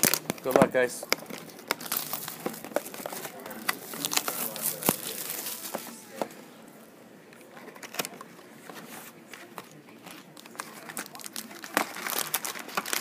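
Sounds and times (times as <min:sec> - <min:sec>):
foil packs rustling: 0:00.0 - 0:06.0, 0:10.1 - 0:13.0.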